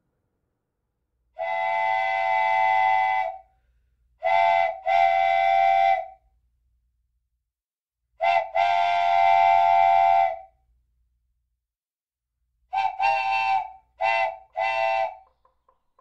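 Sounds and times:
multi-note whistle toots: 0:12.8 - 0:15.4.

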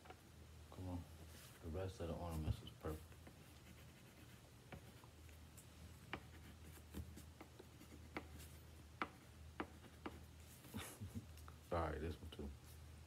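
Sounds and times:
pencil scratching on paper: 0:02.4 - 0:05.4, 0:06.1 - 0:10.7.

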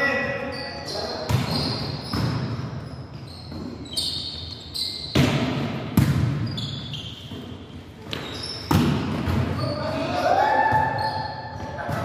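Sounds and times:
sneakers squeaking on court: 0:00.4 - 0:10.0, 0:10.7 - 0:12.0
volleyball slaps echoing: 0:05.1 - 0:06.5, 0:08.0 - 0:09.6.

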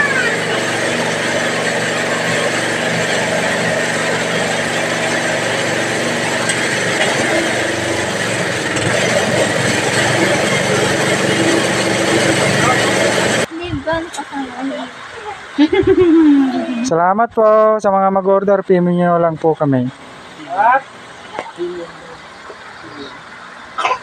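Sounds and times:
bag-filling machine motor hum: 0:00.0 - 0:13.5.

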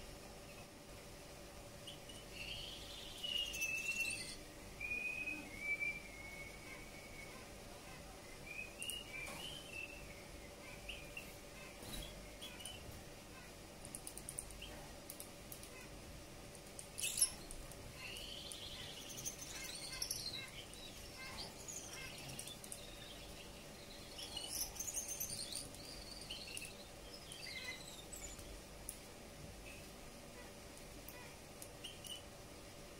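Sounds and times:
faint hum: 0:00.0 - 0:32.9
finch singing chirps and whistles: 0:01.8 - 0:12.9, 0:17.0 - 0:28.5, 0:31.8 - 0:32.3.

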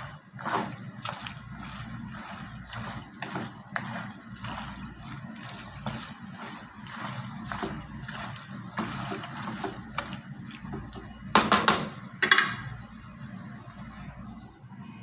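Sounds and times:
spoon stirring pasta in sauce: 0:00.0 - 0:11.3.

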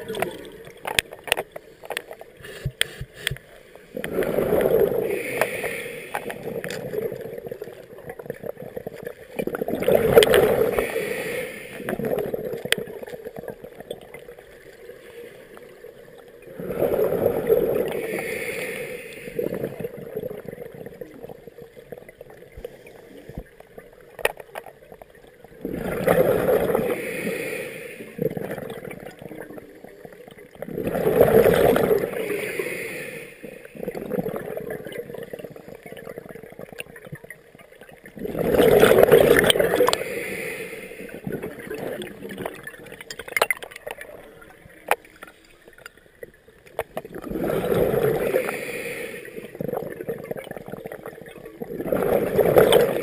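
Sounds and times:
exhaled bubbles bursting: 0:00.0 - 0:01.4, 0:04.0 - 0:05.5, 0:06.1 - 0:11.0, 0:16.4 - 0:18.2, 0:25.5 - 0:27.1, 0:28.0 - 0:32.5, 0:33.8 - 0:40.2, 0:41.0 - 0:45.0, 0:46.8 - 0:48.6, 0:49.4 - 0:53.0
breathing through a regulator: 0:02.4 - 0:07.5, 0:10.0 - 0:12.2, 0:16.5 - 0:21.0, 0:25.9 - 0:28.4, 0:31.0 - 0:34.0, 0:38.6 - 0:43.0, 0:47.4 - 0:49.9.

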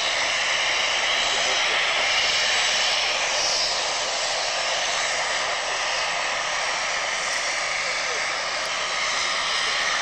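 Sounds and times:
turboprop engines roaring: 0:00.0 - 0:10.0.

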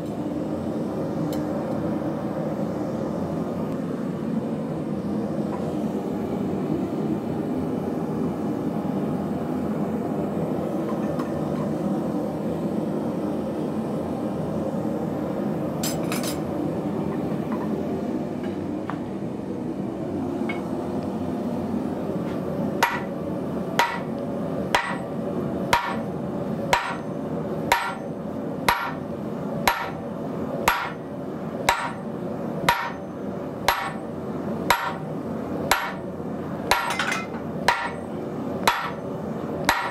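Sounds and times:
hammer striking steel: 0:22.8 - 0:23.1, 0:23.8 - 0:24.1, 0:24.8 - 0:25.1, 0:25.7 - 0:26.1, 0:26.7 - 0:27.1, 0:27.7 - 0:28.1, 0:28.7 - 0:29.0, 0:29.7 - 0:30.0, 0:30.7 - 0:31.1, 0:31.7 - 0:32.1, 0:32.7 - 0:33.0, 0:33.7 - 0:34.1, 0:34.7 - 0:35.0, 0:35.7 - 0:36.1, 0:36.7 - 0:39.9.

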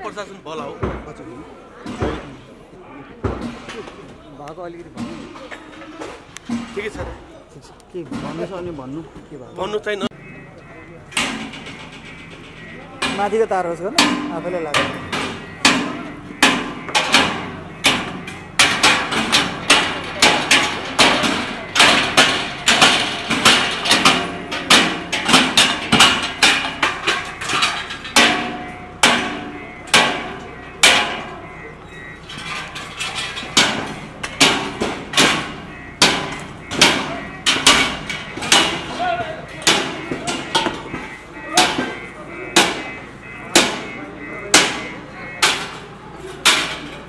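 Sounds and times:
ringing hammer blows: 0:10.1 - 0:47.0.

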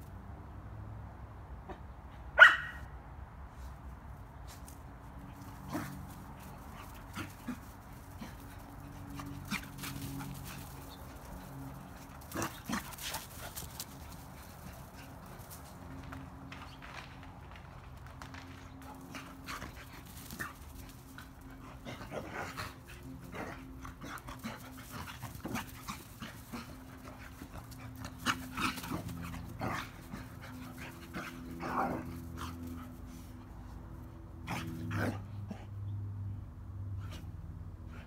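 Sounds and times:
dogs panting: 0:05.2 - 0:16.7, 0:18.4 - 0:35.8.

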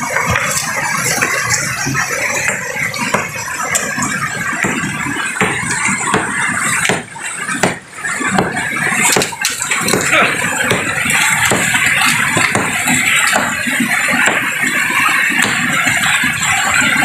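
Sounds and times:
hammer striking stone: 0:04.6 - 0:07.8, 0:08.4 - 0:10.1, 0:10.7 - 0:11.8, 0:12.4 - 0:12.8.

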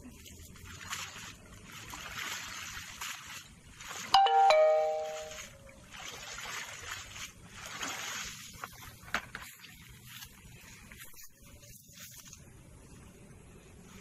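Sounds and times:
water sloshing and dripping from net: 0:00.1 - 0:11.3
two-note ding-dong chime: 0:04.2 - 0:05.4.

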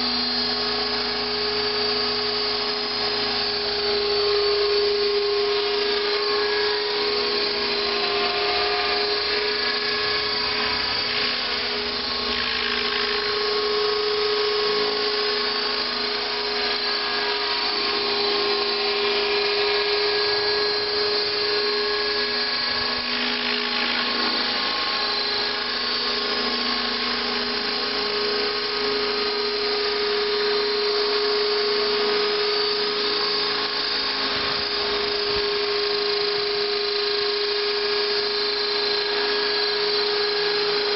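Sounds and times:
rc helicopter motor whine: 0:00.0 - 0:40.9.

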